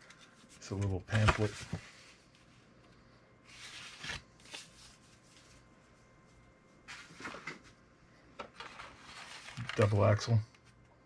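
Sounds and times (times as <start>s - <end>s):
paper rustling: 0.0s - 2.1s, 3.5s - 5.6s, 8.6s - 10.2s
sharp paper crackle: 3.5s - 4.8s, 8.6s - 10.2s.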